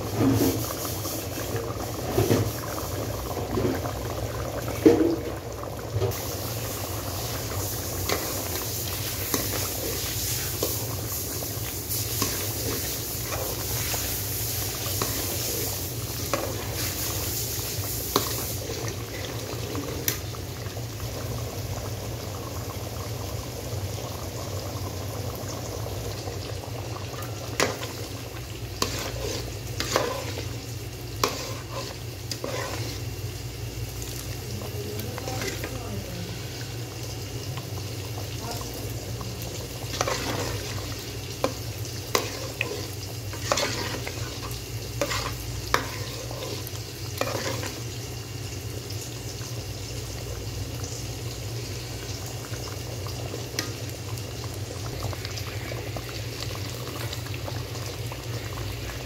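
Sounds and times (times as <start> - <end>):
thick stew bubbling in a pot: 0.0 - 59.0
ladle stirring: 6.1 - 20.3, 27.0 - 33.2, 34.0 - 36.1, 39.4 - 47.8.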